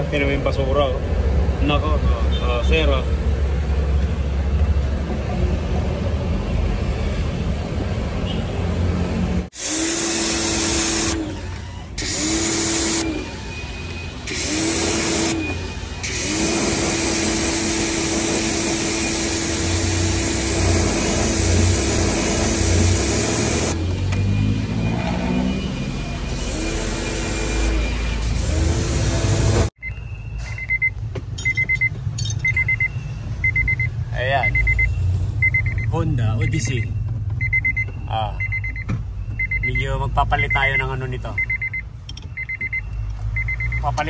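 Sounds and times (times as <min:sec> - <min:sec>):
pressure washer spraying: 0:09.5 - 0:13.4, 0:14.3 - 0:23.8, 0:26.3 - 0:29.7
pressure washer motor hum: 0:09.5 - 0:24.3, 0:25.6 - 0:29.7.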